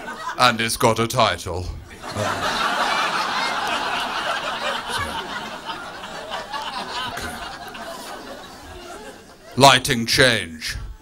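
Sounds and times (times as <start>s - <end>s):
audience laughing: 0.0s - 0.4s, 1.9s - 9.6s.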